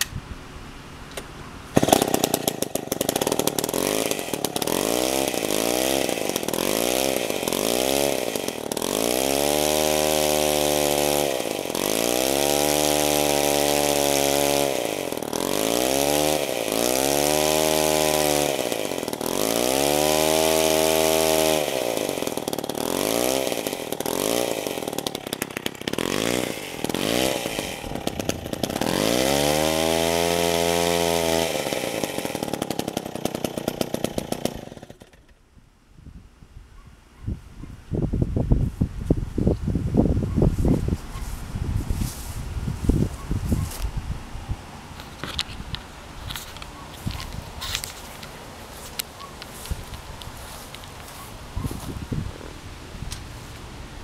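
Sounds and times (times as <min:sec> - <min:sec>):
chainsaw engine revving: 0:01.7 - 0:35.4, 0:46.2 - 0:52.0.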